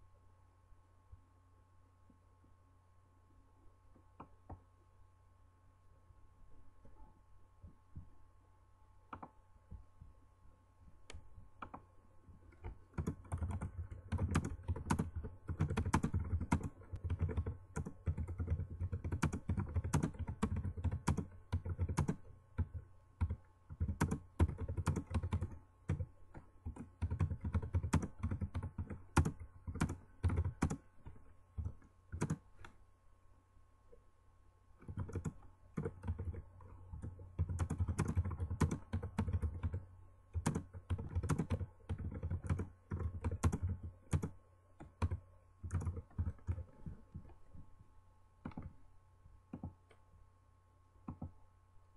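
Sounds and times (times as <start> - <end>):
faint steady hum: 0.0 - 51.9
typing on computer keyboard: 12.5 - 30.8, 31.6 - 32.4, 34.8 - 47.3, 48.4 - 48.7.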